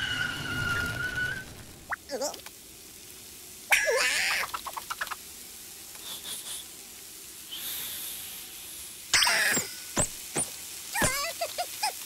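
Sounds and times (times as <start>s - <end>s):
high hiss: 3.5s - 12.0s.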